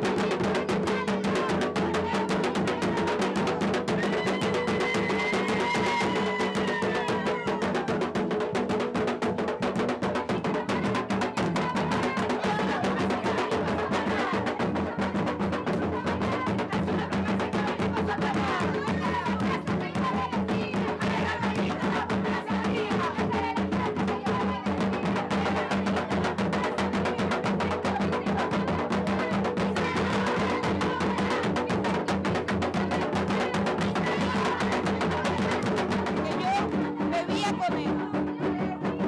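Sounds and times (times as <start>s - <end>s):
barrel drums beaten fast: 0.0s - 39.0s
voices: 10.1s - 39.0s.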